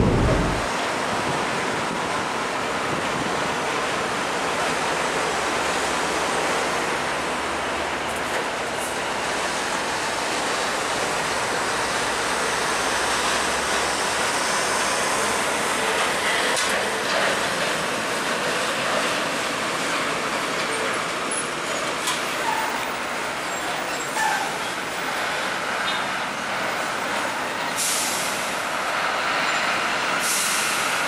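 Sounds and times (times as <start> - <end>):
truck rolling past: 0.0 - 1.1.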